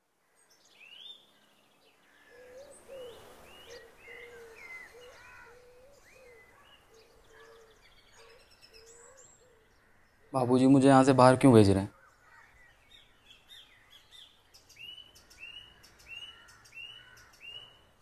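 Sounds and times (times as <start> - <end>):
background hiss: 0.0 - 9.5
birds chirping: 0.4 - 18.0.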